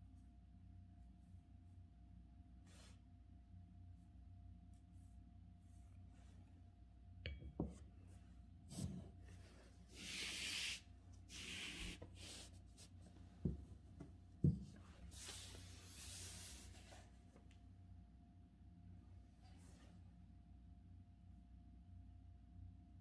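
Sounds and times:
paper rubbing across desk: 0:08.7 - 0:13.0, 0:15.0 - 0:17.1
soft knocks and thumps: 0:13.4 - 0:15.0.

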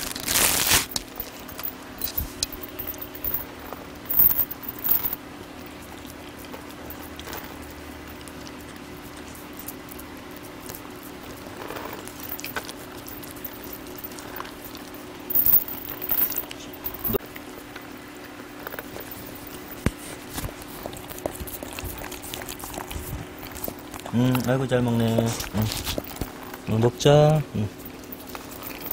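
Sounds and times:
low hum: 0:00.9 - 0:09.3, 0:11.3 - 0:17.2
dog chewing wet bites: 0:05.6 - 0:15.0, 0:19.1 - 0:26.6.

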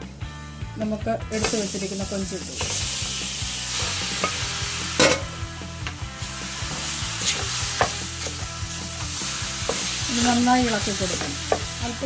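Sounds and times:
shrimp sizzling in hot oil: 0:01.3 - 0:12.0.

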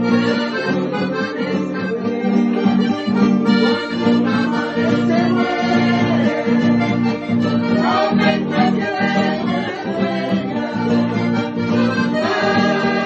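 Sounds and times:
acoustic guitar: 0:00.0 - 0:13.0
person singing: 0:00.0 - 0:13.0
piano accordion: 0:00.0 - 0:13.0.

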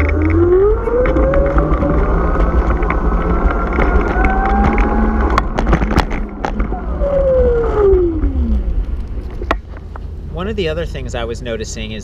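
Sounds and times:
electric motor whining: 0:00.0 - 0:08.8
wind on microphone: 0:00.0 - 0:10.2
tires clicking over bumps: 0:00.0 - 0:12.0
tires rumbling on asphalt: 0:00.0 - 0:12.0.

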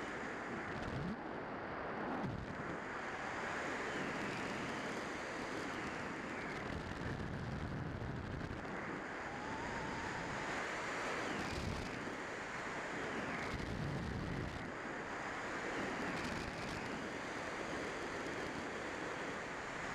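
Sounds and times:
wind rushing over camera: 0:00.0 - 0:19.9.

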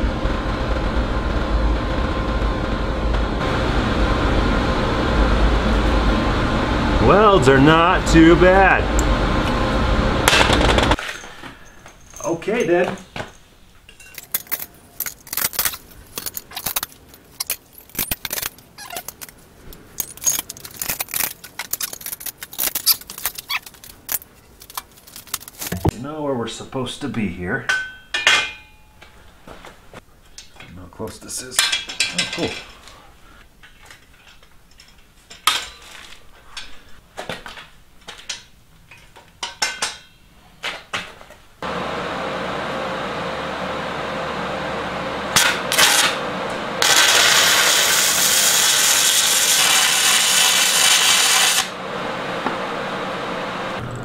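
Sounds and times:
steel parts clinking on metal frame: 0:11.0 - 0:25.9, 0:27.7 - 0:29.2, 0:30.3 - 0:32.9, 0:33.6 - 0:36.8, 0:38.2 - 0:40.3.

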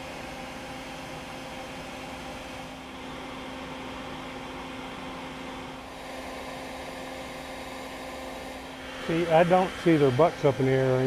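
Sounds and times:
vacuum humming: 0:00.0 - 0:11.0.

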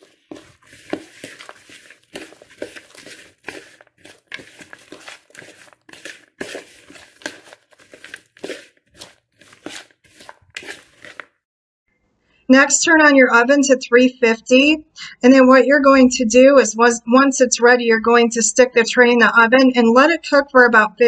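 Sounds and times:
spoon scraping sticky mix in bowl: 0:00.0 - 0:11.4.

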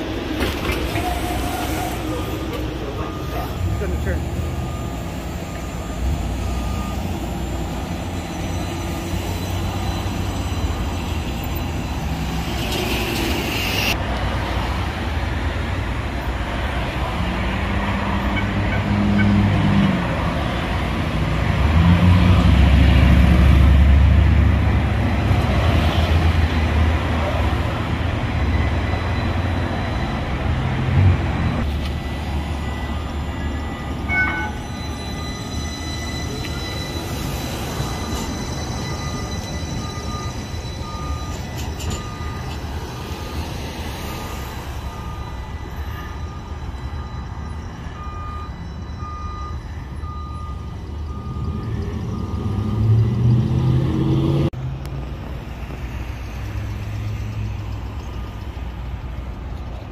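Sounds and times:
street traffic: 0:00.0 - 0:59.9
streetcar rumbling on track: 0:00.0 - 0:59.9
brief high tone: 0:32.0 - 0:42.6.

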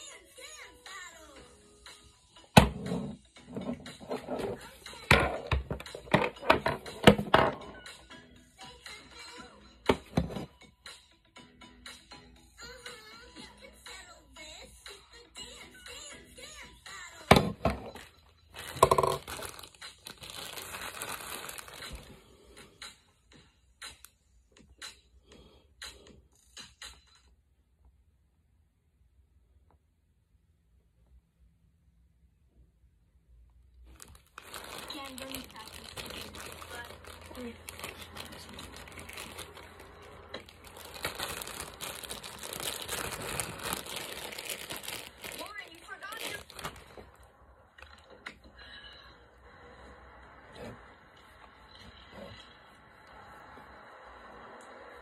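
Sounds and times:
things rustling on table: 0:02.7 - 0:04.6, 0:17.4 - 0:22.2
plastic wrapping crinkling: 0:17.8 - 0:22.2, 0:33.9 - 0:47.3.

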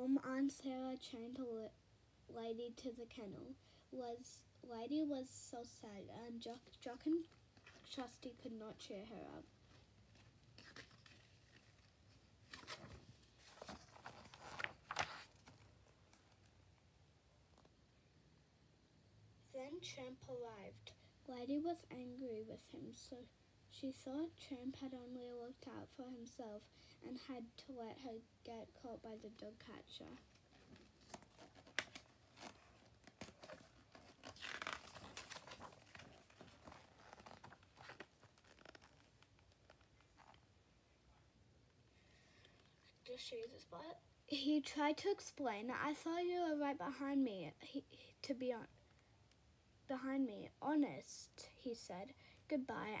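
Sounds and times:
book page turning rustle: 0:06.8 - 0:08.3, 0:09.6 - 0:16.5, 0:30.1 - 0:40.5.

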